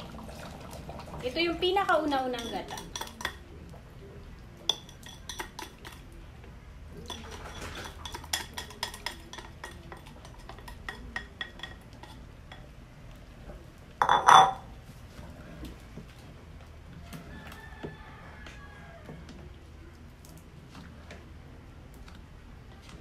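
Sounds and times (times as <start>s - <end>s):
spatula clanking on pot: 2.3s - 3.4s, 14.0s - 14.6s.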